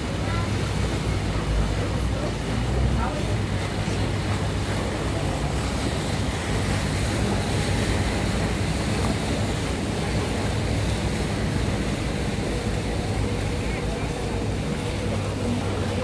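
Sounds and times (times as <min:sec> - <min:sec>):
low engine hum: 0:00.0 - 0:16.0
water rushing past boat: 0:00.0 - 0:16.0.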